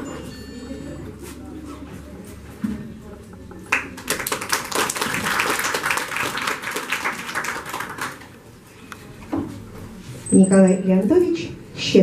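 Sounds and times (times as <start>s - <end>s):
audience applauding: 3.7s - 8.4s.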